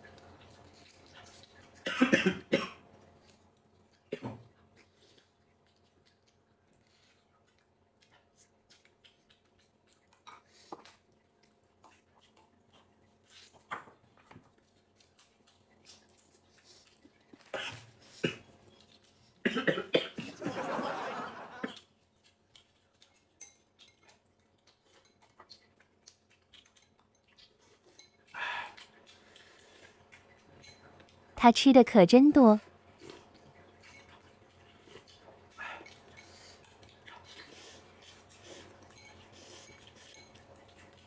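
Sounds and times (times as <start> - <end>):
chewing and gnawing on meat: 0.0 - 31.4, 32.6 - 41.0.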